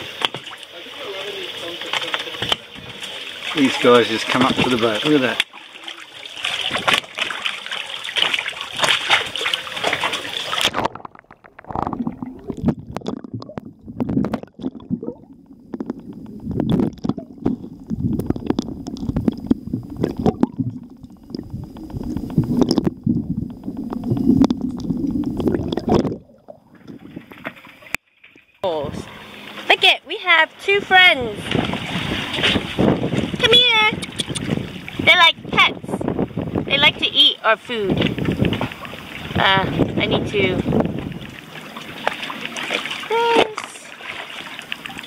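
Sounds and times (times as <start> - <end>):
muffled underwater sloshing: 0.0 - 45.0
seawater splashing: 0.0 - 45.0
sharp underwater clicks: 8.1 - 28.0, 33.9 - 34.8.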